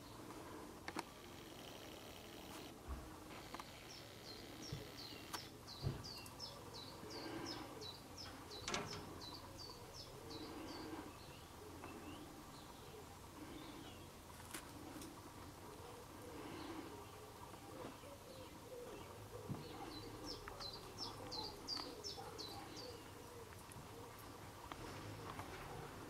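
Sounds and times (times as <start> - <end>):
small songbird singing: 3.8 - 14.1.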